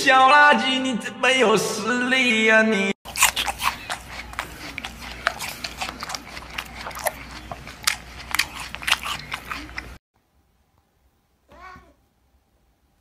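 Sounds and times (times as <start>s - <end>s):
cat licking its paw: 3.1s - 10.0s.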